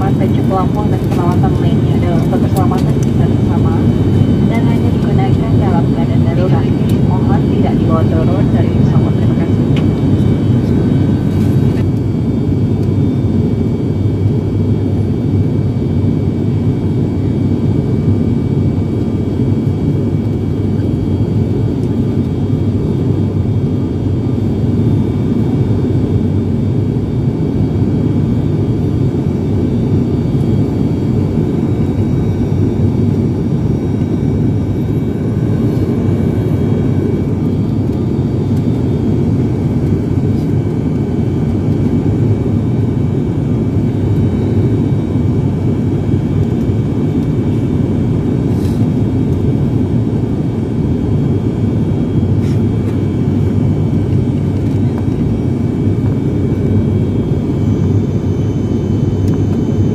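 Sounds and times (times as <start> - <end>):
airliner engine drone: 0.0 - 59.9.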